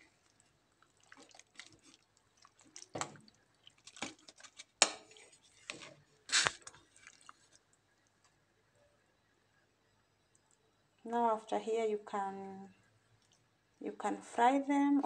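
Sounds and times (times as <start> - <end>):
spoon stirring beans in pot: 0.1 - 7.8.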